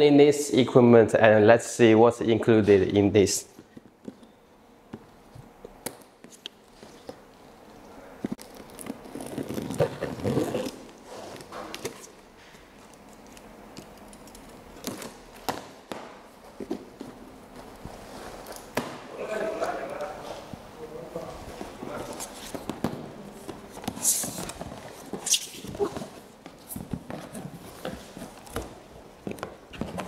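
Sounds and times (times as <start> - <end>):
tape and cardboard rustling: 8.2 - 20.6, 21.4 - 30.0.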